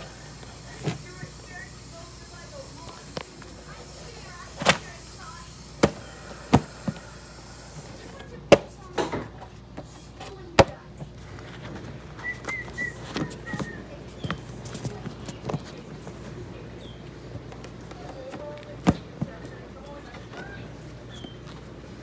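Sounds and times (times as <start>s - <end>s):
book and plastic bin knocking: 5.8s - 7.0s.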